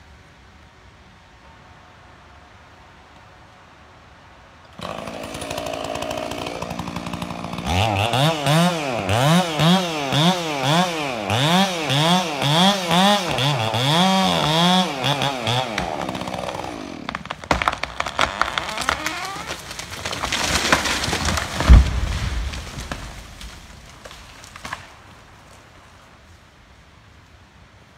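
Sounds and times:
chainsaw cutting wood: 4.7s - 24.8s
rush of branches: 4.7s - 27.3s
wood cracking: 4.8s - 25.8s
tree hitting ground thud: 13.0s - 24.9s.

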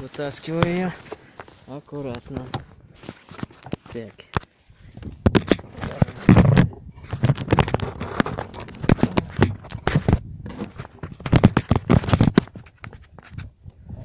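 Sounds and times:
fish thrashing in a boat: 5.0s - 13.5s.

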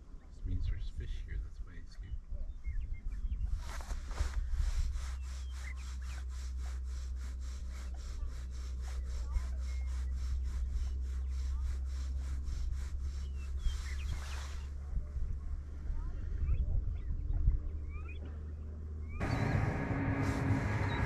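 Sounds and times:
steady low rumble: 0.2s - 21.0s
fly line swishing: 3.5s - 14.8s.

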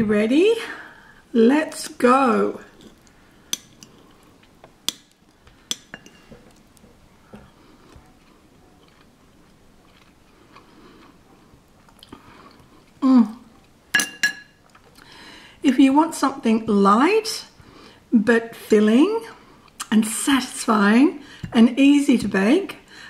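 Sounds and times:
quiet chewing: 2.7s - 13.9s, 14.6s - 15.1s
cutlery clinking on ceramic bowl: 5.7s - 6.4s, 13.9s - 14.6s.

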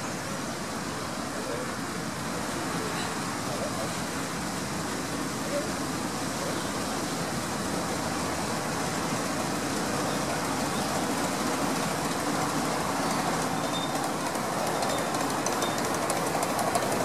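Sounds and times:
miniature steam locomotive running: 0.0s - 17.0s
wheels rolling on rails: 4.8s - 17.0s.

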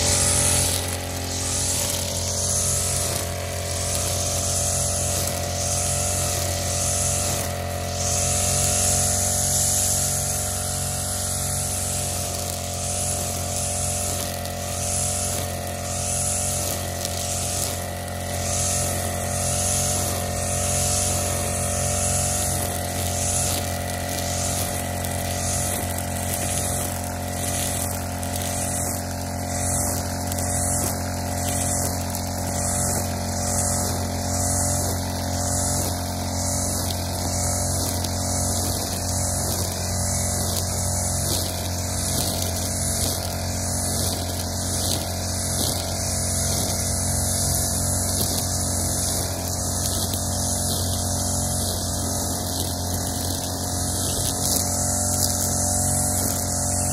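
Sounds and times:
brush cutter engine running: 0.0s - 56.9s.

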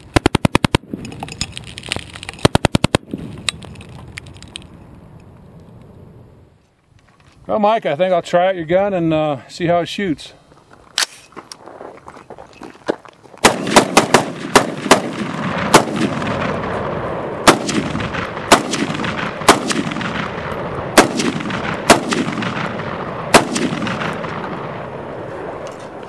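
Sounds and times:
gunshots with rolling echo: 0.0s - 1.1s, 2.4s - 3.3s, 13.4s - 25.6s.

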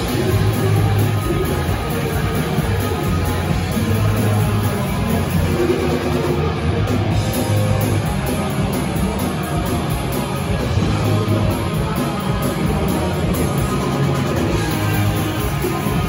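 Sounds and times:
drum kit: 0.0s - 16.0s
electric guitars: 0.0s - 16.0s
live rock band playing: 0.0s - 16.0s.

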